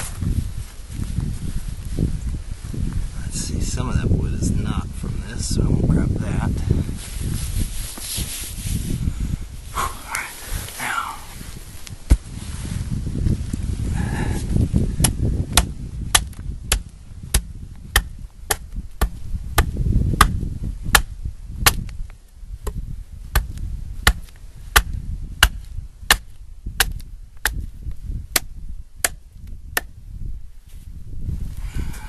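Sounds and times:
wind rumble on microphone: 0.0s - 32.0s
axe striking wood: 15.0s - 22.0s, 22.6s - 27.7s, 28.3s - 29.2s.

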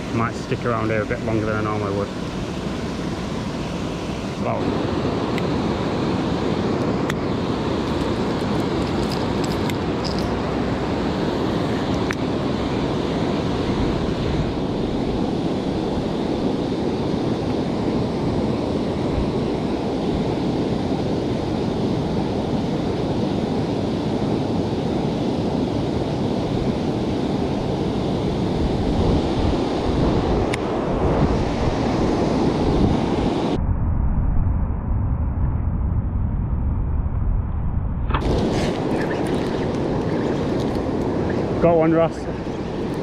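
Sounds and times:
wind buffeting microphone: 25.8s - 43.0s
water rushing over weir: 38.1s - 43.0s.

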